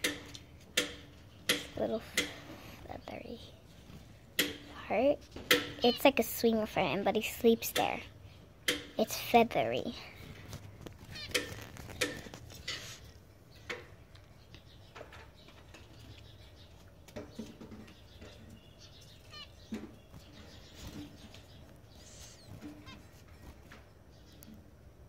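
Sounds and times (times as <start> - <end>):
finch chirping: 4.4 - 9.9, 11.0 - 13.8, 14.4 - 24.6
bird wings fluttering: 10.2 - 13.0, 20.0 - 23.9.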